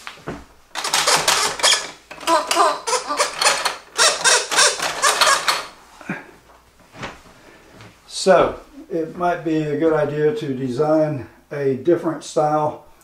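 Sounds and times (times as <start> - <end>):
toy barn rasping clatter: 0.8 - 5.8.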